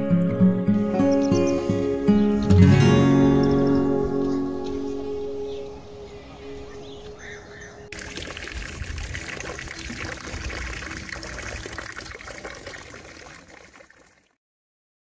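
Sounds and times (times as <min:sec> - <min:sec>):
fountain water splashing into trough: 0:07.9 - 0:14.4.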